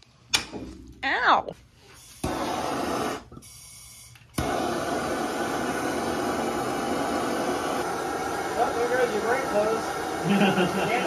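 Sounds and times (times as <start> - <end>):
gas torch hissing: 1.8 - 11.0
gas torch lighting click: 4.1 - 4.6.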